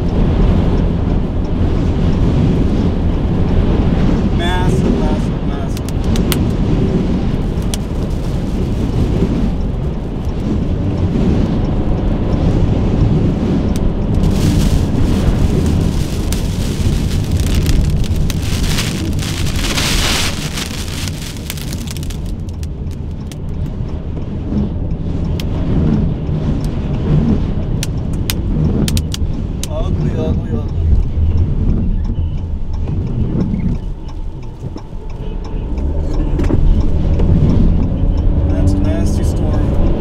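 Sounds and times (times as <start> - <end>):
raindrops ticking: 0.0 - 40.0
wind low rumble: 0.0 - 40.0
rain hissing: 14.1 - 22.7.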